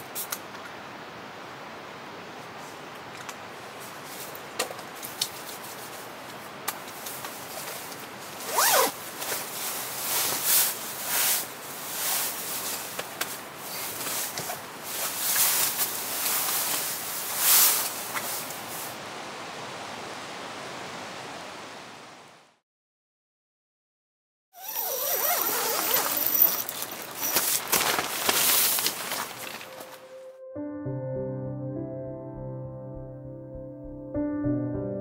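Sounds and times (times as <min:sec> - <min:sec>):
steady background hiss: 0:00.0 - 0:22.6, 0:24.7 - 0:30.4
fabric rustling: 0:07.3 - 0:18.9, 0:24.6 - 0:30.2
zipper being pulled: 0:08.4 - 0:09.4, 0:24.6 - 0:29.0.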